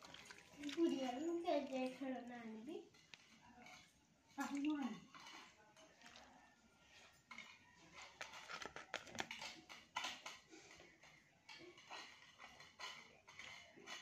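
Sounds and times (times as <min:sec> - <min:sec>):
wet eating noises: 0:00.0 - 0:10.8.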